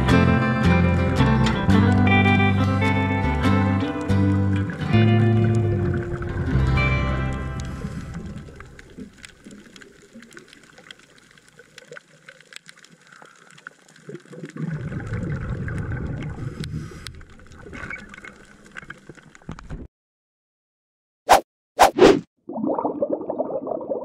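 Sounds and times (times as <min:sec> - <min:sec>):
guitar music: 0:00.0 - 0:08.8
scuba exhaust bubbles: 0:04.6 - 0:11.7, 0:14.1 - 0:18.3, 0:22.5 - 0:24.0
sharp underwater clicks: 0:07.6 - 0:14.6.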